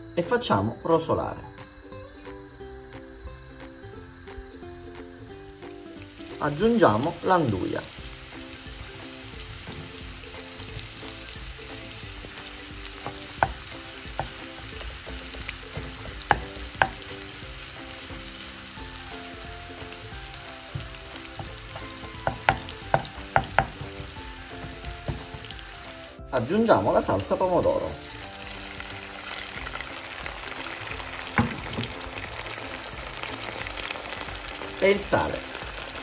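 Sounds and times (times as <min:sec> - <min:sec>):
onion frying in oil: 0:01.1 - 0:36.0
wooden spoon knocking on pan: 0:08.8 - 0:17.6, 0:20.6 - 0:25.8, 0:31.2 - 0:32.3.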